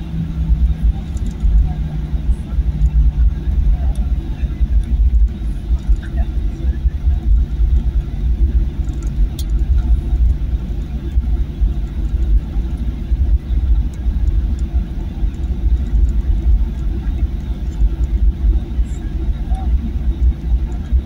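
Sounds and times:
aircraft engines idling: 0.0s - 21.0s.

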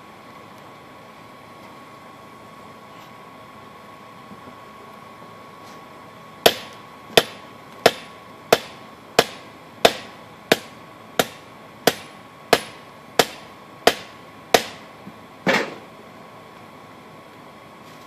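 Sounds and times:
hammer striking steel on anvil: 6.4s - 14.8s.

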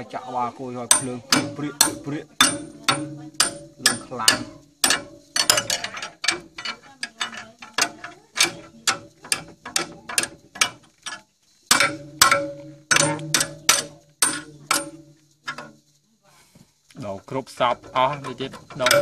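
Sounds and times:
metal ringing: 0.8s - 16.0s, 17.6s - 19.0s
ratchet wrench clicking: 18.0s - 19.0s.

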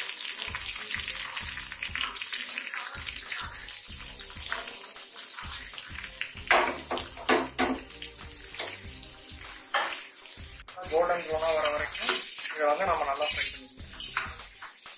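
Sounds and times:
butter sizzling in a pot: 0.0s - 14.9s
background music with a beat: 5.5s - 12.1s, 12.9s - 14.9s.

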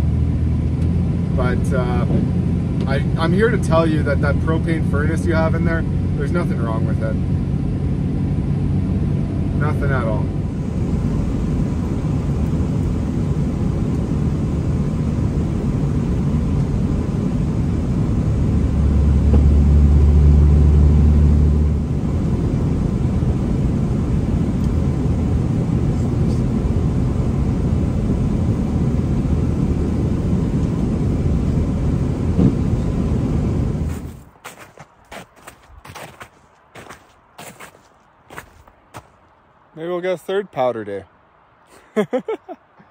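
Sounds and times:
truck engine and road rumble: 0.0s - 42.9s.

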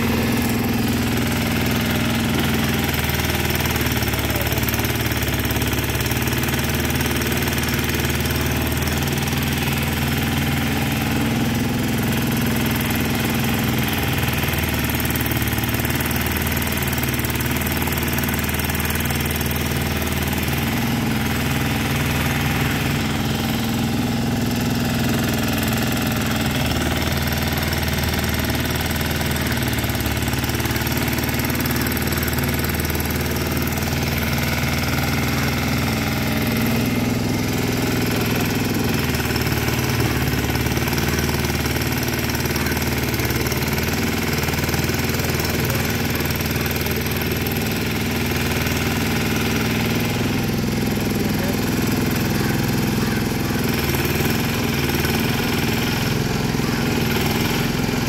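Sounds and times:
backhoe engine running: 0.0s - 58.0s.

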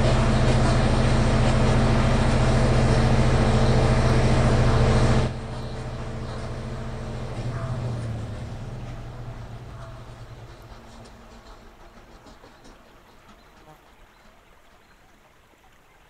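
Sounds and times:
low steady hum: 0.0s - 11.8s
generator engine drone: 0.0s - 12.8s.

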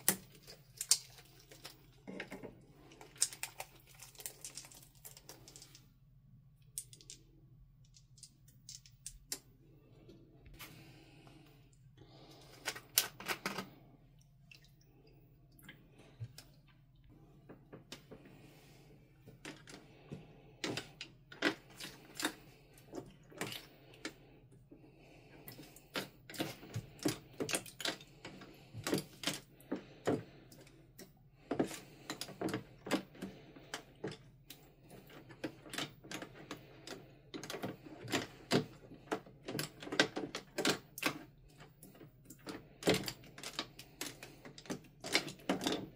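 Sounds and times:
spoon stirring thick slime: 0.0s - 5.9s, 18.1s - 45.9s.

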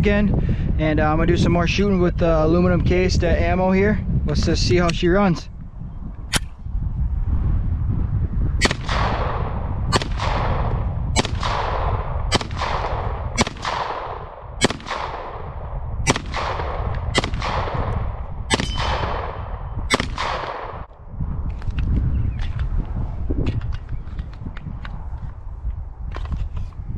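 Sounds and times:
pistol shots: 8.6s - 20.9s.

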